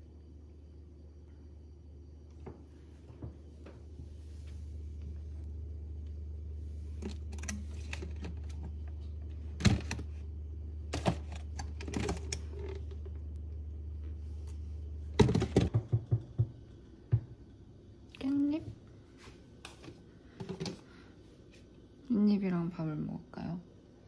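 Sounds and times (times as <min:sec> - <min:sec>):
low hum: 0:00.0 - 0:24.0
objects clicking and knocking: 0:10.9 - 0:13.2.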